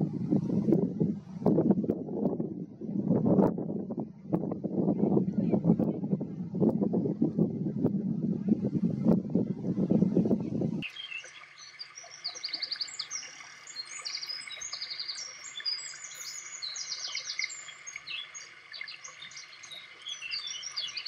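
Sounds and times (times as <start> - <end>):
small birds chirping and trilling: 10.4 - 21.0.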